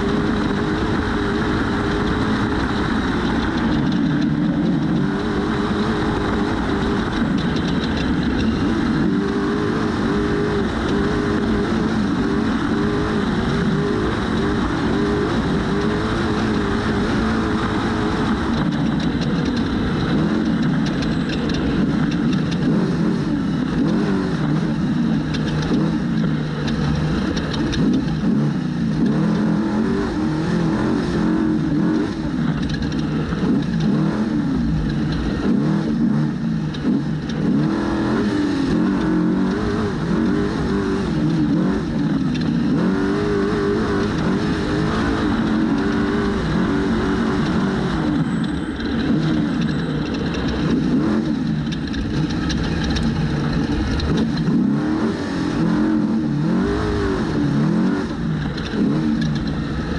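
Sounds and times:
constant rushing noise: 0:00.0 - 0:59.9
engine revving hard: 0:21.6 - 0:59.9.

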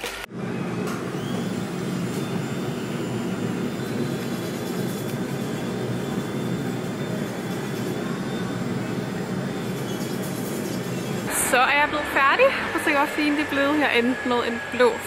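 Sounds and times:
dust collector fan droning: 0:00.3 - 0:15.0
electric nail drill whine: 0:00.4 - 0:15.0.

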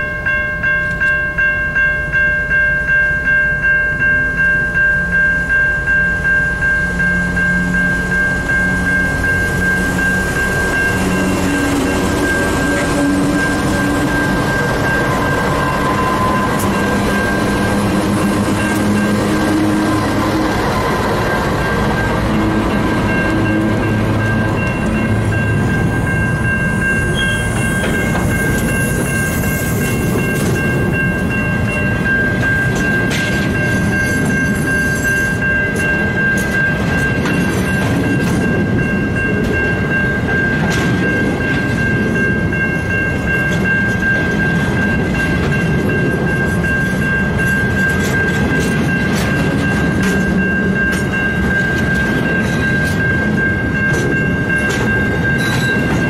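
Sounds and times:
high-pitched ringing tone: 0:00.0 - 0:56.0
steel wheels rolling on rails: 0:03.2 - 0:56.0.

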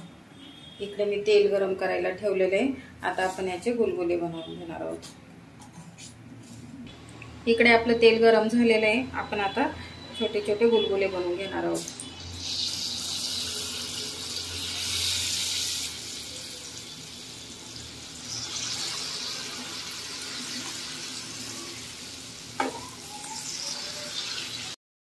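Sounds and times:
batter sizzling in hot oil: 0:11.8 - 0:24.8.

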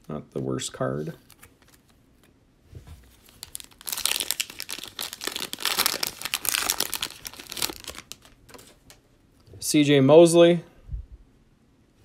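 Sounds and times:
foil wrapper tearing and crinkling: 0:03.3 - 0:08.4.

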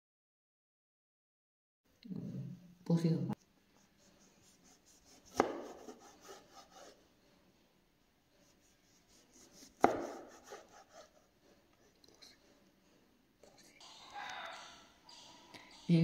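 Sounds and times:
knife knocking on cutting board: 0:09.8 - 0:10.2.

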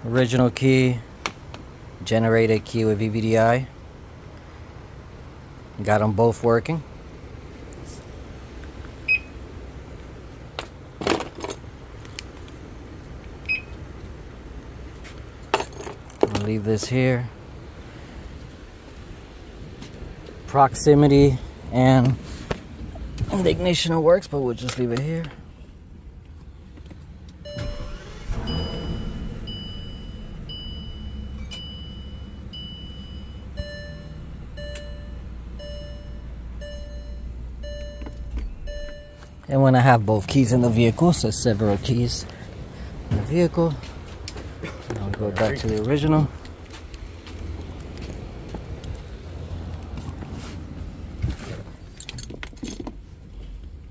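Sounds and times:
low steady hum: 0:00.0 - 0:53.9
car warning chime: 0:09.1 - 0:09.4, 0:13.4 - 0:13.8, 0:27.4 - 0:41.8
short high electronic beeps: 0:27.4 - 0:39.4.

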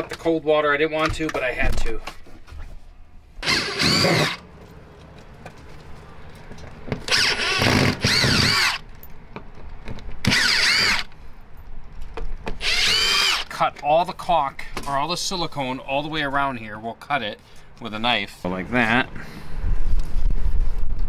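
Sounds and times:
cordless drill motor whine: 0:03.4 - 0:04.4, 0:07.1 - 0:08.8, 0:10.2 - 0:11.1, 0:12.6 - 0:13.5.

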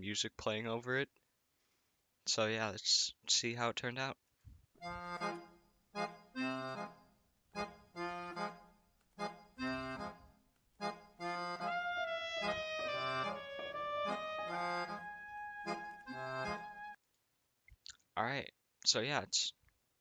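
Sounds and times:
bouncy instrumental music: 0:04.8 - 0:17.0.

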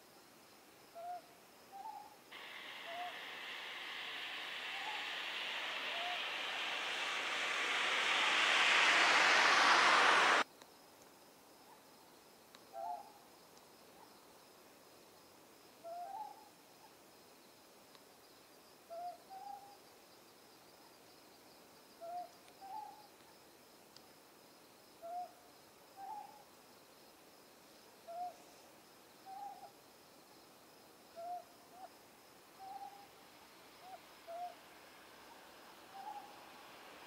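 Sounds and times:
high insect trill: 0:02.4 - 0:10.4, 0:32.0 - 0:37.0
loud rushing hiss: 0:02.4 - 0:10.4, 0:32.4 - 0:37.0.

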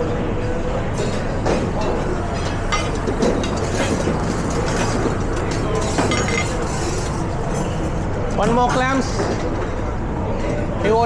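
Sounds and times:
pans and utensils clinking: 0:01.0 - 0:07.7.

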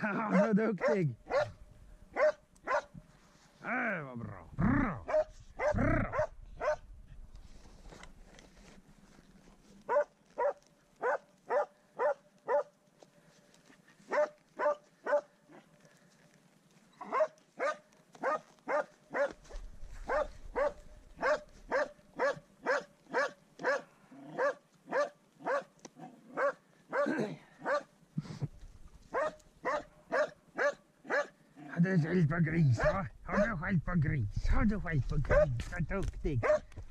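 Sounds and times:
dog barking: 0:00.2 - 0:03.0, 0:05.1 - 0:06.8, 0:09.9 - 0:12.7, 0:14.1 - 0:15.6, 0:17.0 - 0:25.7, 0:26.3 - 0:27.9, 0:29.1 - 0:31.4, 0:32.8 - 0:33.5, 0:35.3 - 0:35.6, 0:36.4 - 0:36.7.

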